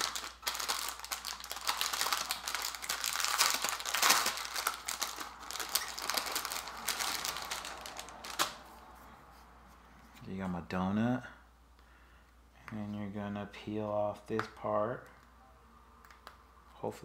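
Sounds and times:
packaging crinkling and rustling: 0.0s - 8.7s.

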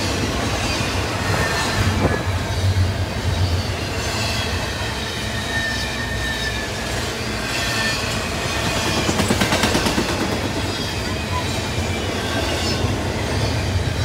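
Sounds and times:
train wheels rumbling on rail: 0.0s - 14.0s
faint thin wheel squeals: 4.3s - 8.8s.

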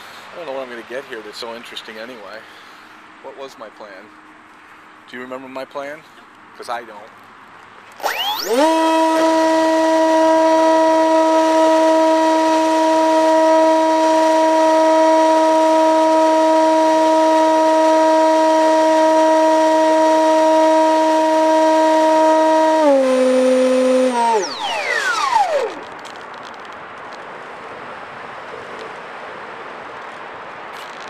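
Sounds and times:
electric motor and propeller whine: 8.0s - 26.2s.

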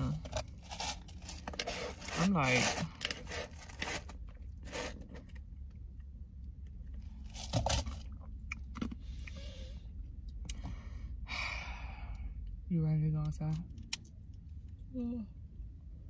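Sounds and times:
low rumble inside car: 0.0s - 16.0s
short scrapes and clicks: 0.7s - 5.4s.

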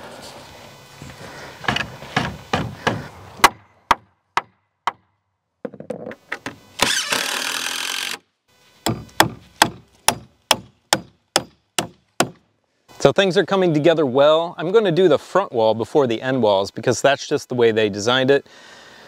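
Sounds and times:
hammer striking nails: 1.7s - 5.1s, 8.9s - 12.4s.

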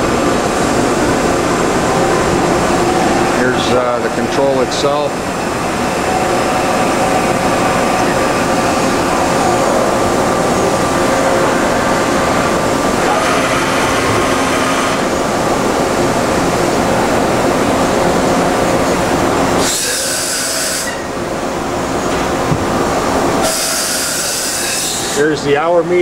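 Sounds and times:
industrial machinery drone: 0.0s - 26.0s
hiss: 19.6s - 21.0s, 23.4s - 25.2s.

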